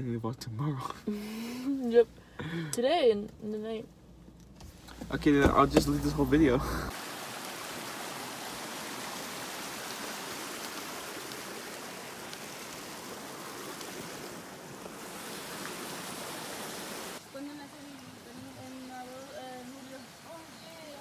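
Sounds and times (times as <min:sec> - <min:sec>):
creek flowing over stones: 0:05.3 - 0:21.0.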